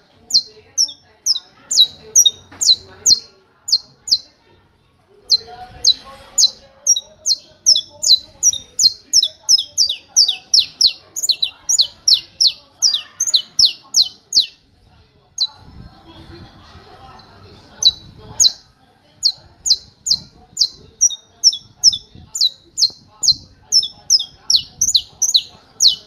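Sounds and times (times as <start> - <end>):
finch singing sharp high notes: 5.3 - 14.6, 19.2 - 26.0.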